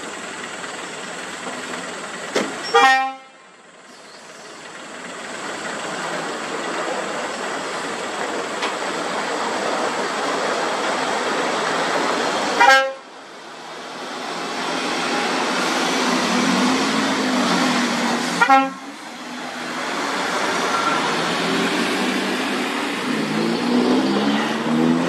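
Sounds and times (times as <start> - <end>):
heavy truck traffic rumble: 0.0 - 25.0
truck approaching: 0.0 - 25.0
vehicle horn blast: 2.7 - 3.4, 12.6 - 13.0, 18.4 - 18.9.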